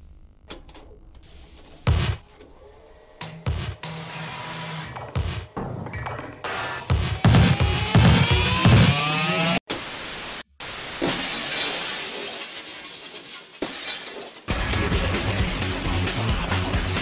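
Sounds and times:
music with steady beat: 0:04.9 - 0:09.1
intro music: 0:06.1 - 0:09.6
glass shattering crash: 0:10.8 - 0:15.6
falling debris: 0:10.8 - 0:16.1.

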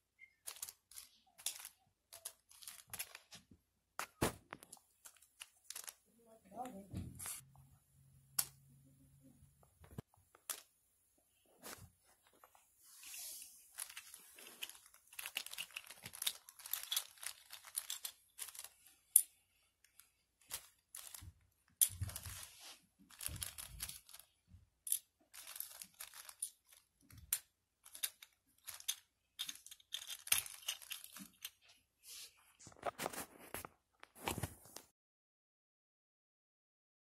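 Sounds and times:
plastic toy pieces clicking: 0:00.2 - 0:03.3, 0:05.0 - 0:06.0, 0:13.8 - 0:22.4, 0:23.1 - 0:31.6.

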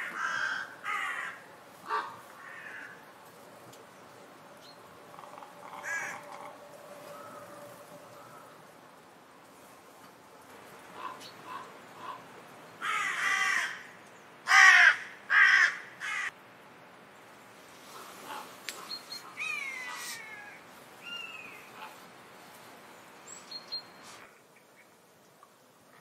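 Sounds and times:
harsh raspy bird calls: 0:05.0 - 0:08.6, 0:10.9 - 0:13.9.

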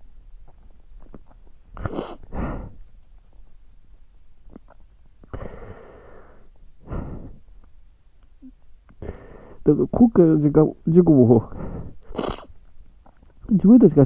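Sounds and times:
man sniffling: 0:01.8 - 0:02.8, 0:05.3 - 0:07.4, 0:11.5 - 0:12.5.

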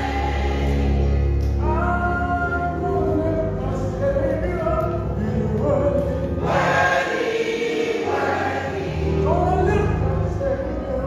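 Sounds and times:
gospel choir singing: 0:00.0 - 0:04.4, 0:05.0 - 0:11.0
keyboard accompaniment: 0:00.0 - 0:11.0.

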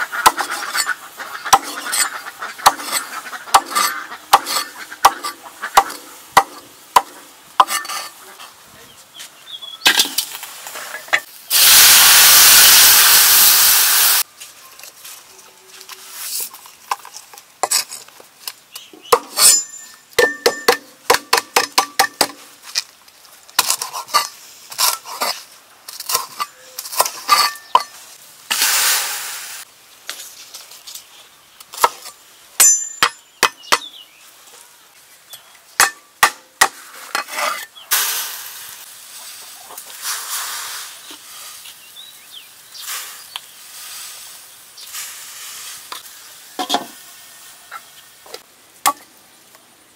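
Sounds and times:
hiss: 0:10.4 - 0:14.3, 0:28.5 - 0:29.7, 0:37.9 - 0:41.9, 0:42.7 - 0:47.4
dishes and cookware clinking: 0:46.6 - 0:47.0.

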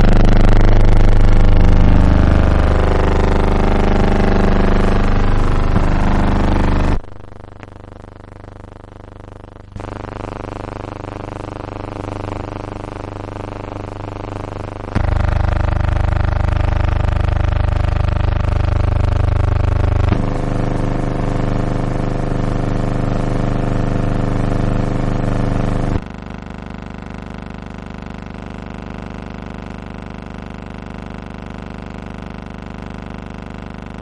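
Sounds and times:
steady buzzing hum: 0:00.0 - 0:07.9, 0:09.6 - 0:26.8.

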